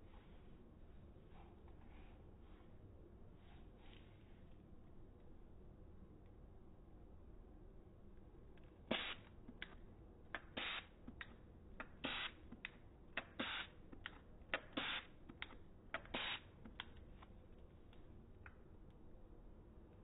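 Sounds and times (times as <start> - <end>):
spray bottle hissing bursts: 8.9 - 9.6, 10.4 - 12.5, 13.2 - 13.8, 14.5 - 15.2, 16.0 - 16.6
spray bottle trigger clicks: 10.4 - 16.8.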